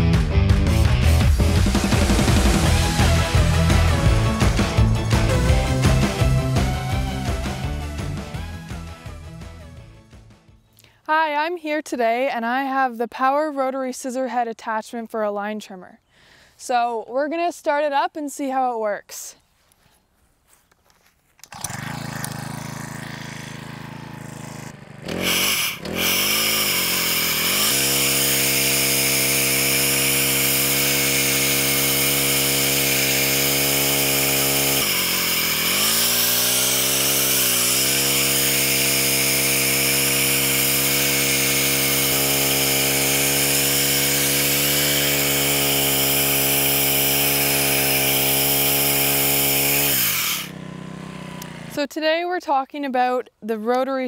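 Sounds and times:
trimmer engine revving: 0:00.0 - 0:09.8, 0:21.4 - 0:51.9.

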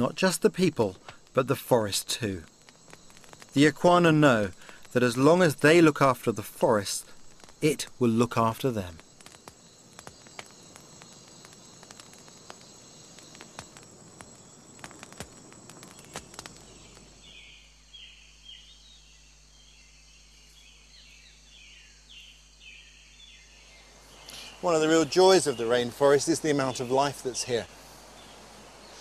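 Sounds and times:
clicks and crackles: 0:00.0 - 0:17.4
insect chorus drone: 0:00.0 - 0:29.0.

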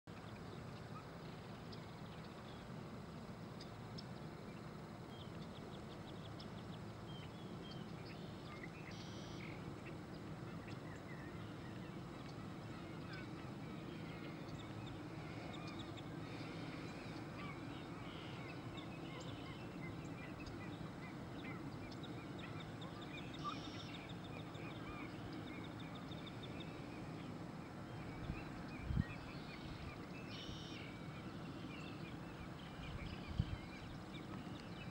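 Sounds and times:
small birds chirping: 0:00.1 - 0:34.9
high bird trills: 0:08.2 - 0:09.7.

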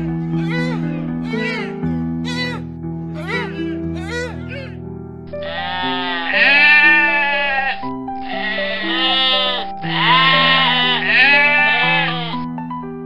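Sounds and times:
background music with sustained chords: 0:00.0 - 0:13.0
goat bleating: 0:05.4 - 0:12.4.

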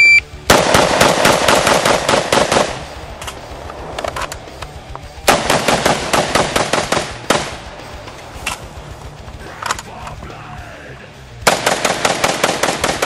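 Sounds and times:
shotgun rapid fire: 0:00.4 - 0:03.2, 0:05.2 - 0:07.7, 0:11.4 - 0:13.0.

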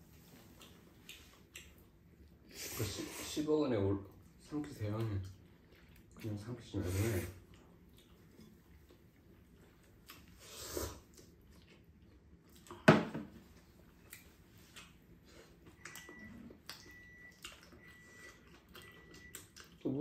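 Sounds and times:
quiet chewing: 0:00.1 - 0:02.8, 0:04.0 - 0:06.6, 0:07.3 - 0:20.0
faint high beep: 0:15.8 - 0:19.4.

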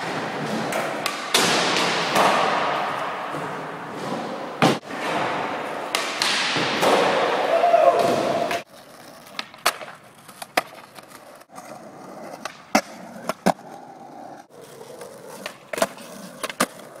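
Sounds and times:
skateboard clacking on ground: 0:08.4 - 0:17.0
skateboard wheels rolling on asphalt: 0:08.6 - 0:17.0.

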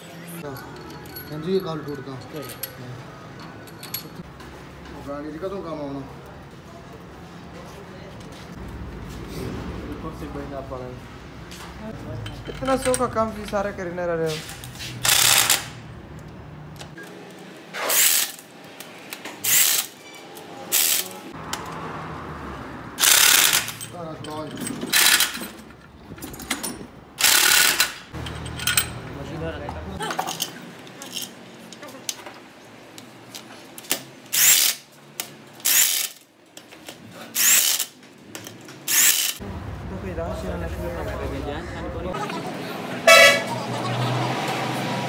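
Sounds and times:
metal tools clicking: 0:00.0 - 0:04.3, 0:12.2 - 0:13.7, 0:23.0 - 0:29.1
power tool bursts: 0:15.0 - 0:15.8, 0:23.0 - 0:23.8, 0:27.2 - 0:28.1.

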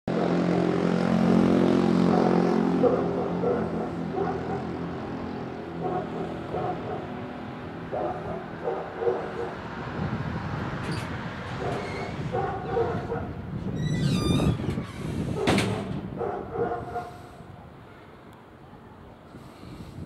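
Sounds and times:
engine droning: 0:00.1 - 0:13.8.

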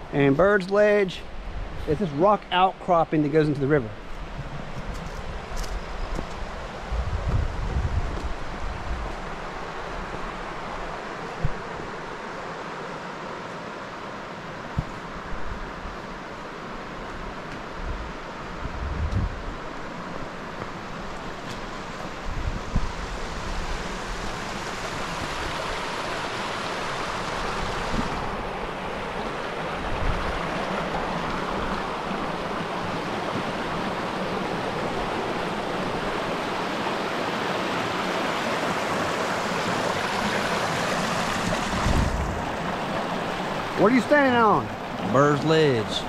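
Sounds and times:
wind bumps on microphone: 0:04.3 - 0:09.2, 0:17.8 - 0:19.5, 0:22.2 - 0:23.7, 0:41.3 - 0:42.6
river water rushing over rocks: 0:19.4 - 0:46.0.

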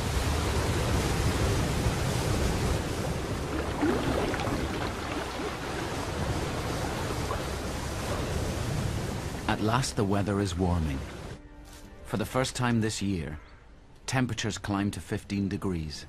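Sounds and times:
water rushing over rocks: 0:00.0 - 0:09.8.

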